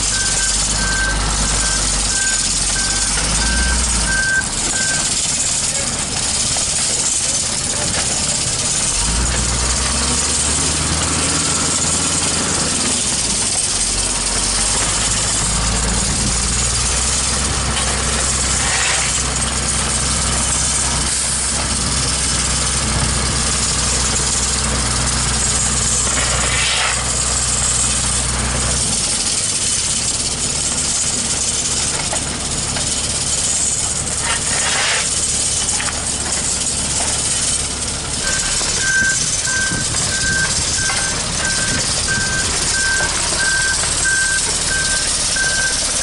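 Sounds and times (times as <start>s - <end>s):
diesel truck engines idling: 0.0s - 46.0s.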